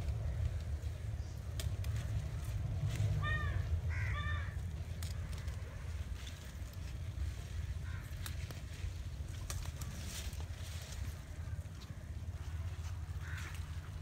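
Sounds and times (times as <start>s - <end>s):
stems snapping: 0.0s - 3.3s, 4.6s - 7.1s, 7.8s - 12.0s
leaves rustling: 0.0s - 14.0s
low rumble: 0.0s - 14.0s
bird cawing: 3.1s - 6.0s, 7.7s - 8.5s, 11.2s - 14.0s.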